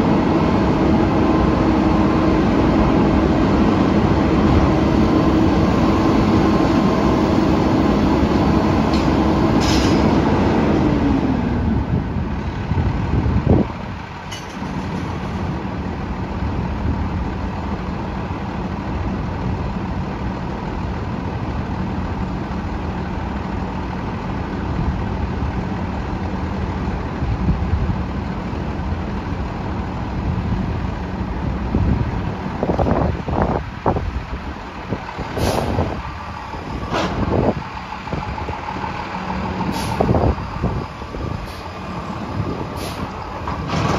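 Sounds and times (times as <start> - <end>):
diesel engine running: 0.0 - 43.9
metal clank: 14.3 - 15.5.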